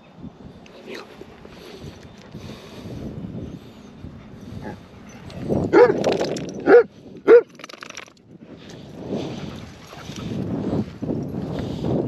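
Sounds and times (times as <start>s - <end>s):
dog barking: 5.7s - 6.0s, 6.6s - 7.5s.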